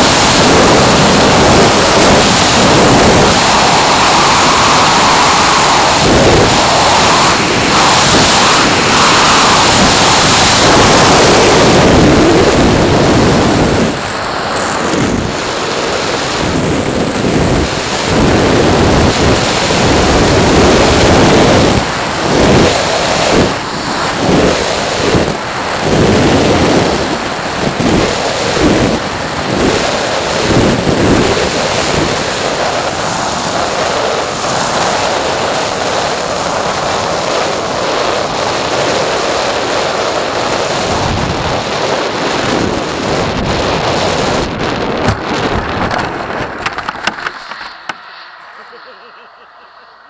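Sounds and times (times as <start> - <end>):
model plane rolling on grass: 0.0 - 35.6, 44.0 - 48.0
wind on microphone: 0.0 - 48.8
jet engine whine: 0.0 - 50.0.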